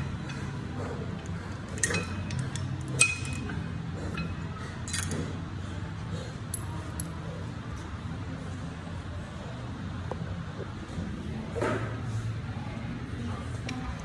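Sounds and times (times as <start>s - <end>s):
low room hum: 0.0s - 14.0s
metal weights clinking: 1.7s - 5.2s.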